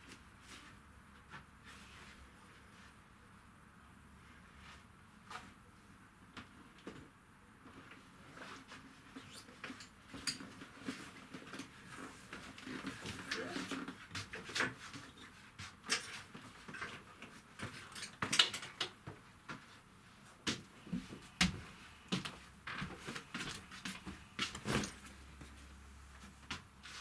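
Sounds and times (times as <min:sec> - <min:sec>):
bags rustling: 0:24.2 - 0:25.4.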